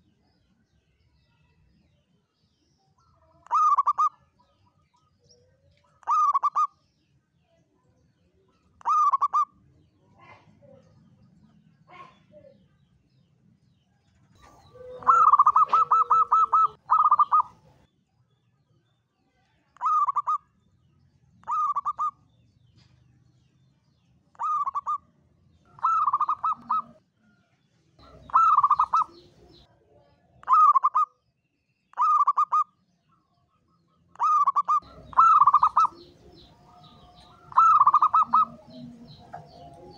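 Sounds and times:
dove cooing: 3.5 - 4.2, 6.0 - 6.7, 8.8 - 9.5, 14.4 - 17.8, 21.4 - 22.2, 24.4 - 25.0, 25.7 - 27.0, 28.0 - 29.6, 32.0 - 32.6, 34.2 - 39.9.

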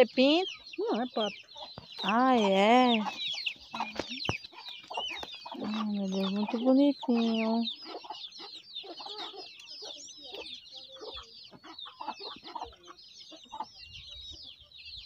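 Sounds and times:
ducklings peeping: 0.0 - 15.0
hen clucking: 0.0 - 15.0.

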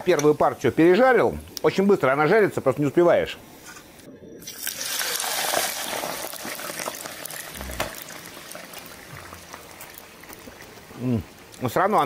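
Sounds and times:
potatoes deep-frying in fat: 4.4 - 12.0.

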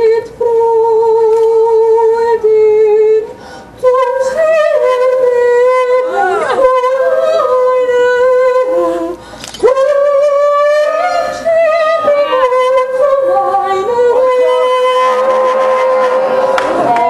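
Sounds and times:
opera singer singing: 0.0 - 17.0
singer breathing: 3.3 - 3.8, 9.2 - 9.6.

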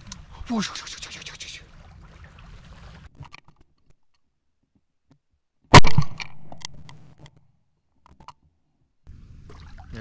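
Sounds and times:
shotgun shots: 5.7 - 6.5
gunshot echo: 5.7 - 6.6.

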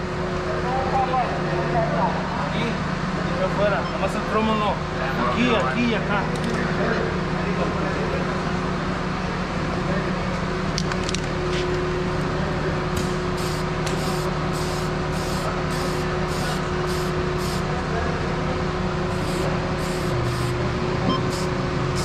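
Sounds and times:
spray can bursts: 13.4 - 17.6, 19.2 - 20.6, 21.2 - 22.0.

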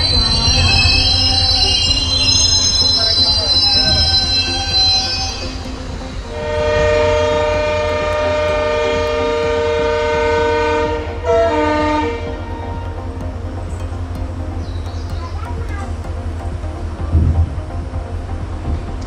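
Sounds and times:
train horn blasts: 0.0 - 13.0
low rumble of moving train: 0.0 - 19.0.

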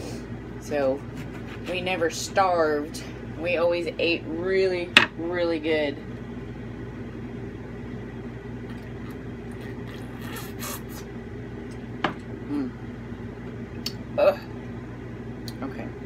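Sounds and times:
chewing and handling food: 8.7 - 11.0.

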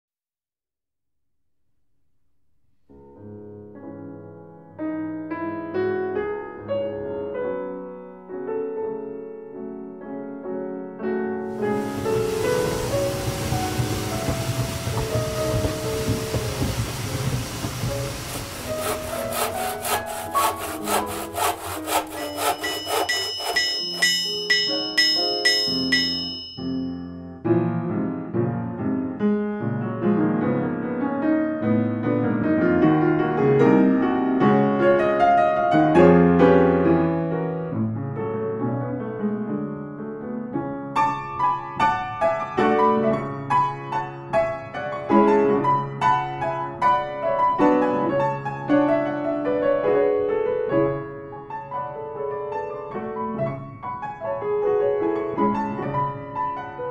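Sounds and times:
slow solo piano music: 3.2 - 19.1, 24.5 - 56.9
high ringing tones: 22.2 - 27.1.

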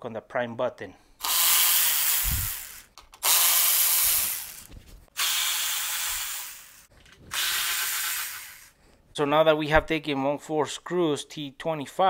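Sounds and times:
cordless electric ratchet running: 1.2 - 8.8.

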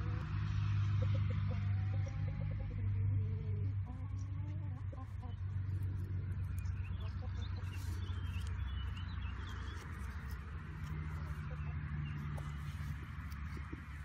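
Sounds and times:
steady low hum: 0.0 - 14.0
birds chirping: 0.9 - 14.0.

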